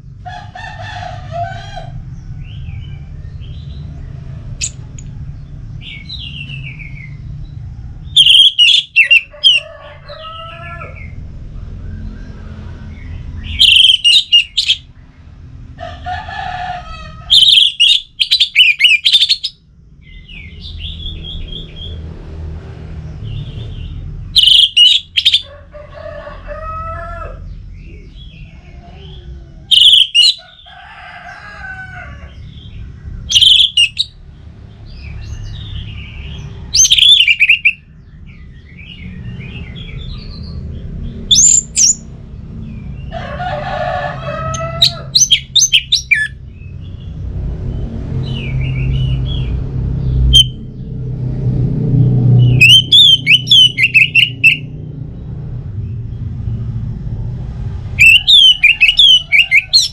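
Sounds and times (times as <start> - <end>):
low background rumble: 0.0 - 59.9
bird chattering notes: 8.2 - 9.6, 13.5 - 14.8, 17.3 - 19.6, 24.4 - 25.5, 29.7 - 30.4, 33.3 - 34.1, 41.3 - 42.0, 44.9 - 46.4, 52.6 - 54.6
thrush whistled song: 52.5 - 54.6.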